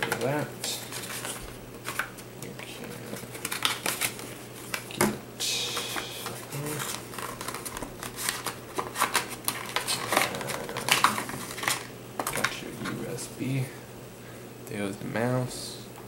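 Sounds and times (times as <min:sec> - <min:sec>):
cardboard packaging rustling: 0:00.0 - 0:05.0, 0:05.6 - 0:13.2.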